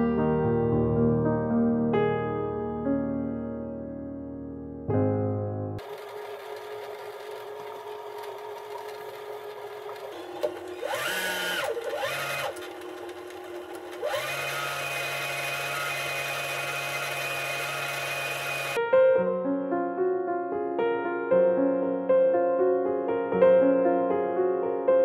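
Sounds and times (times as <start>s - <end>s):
sewing machine motor whining: 5.8s - 18.8s.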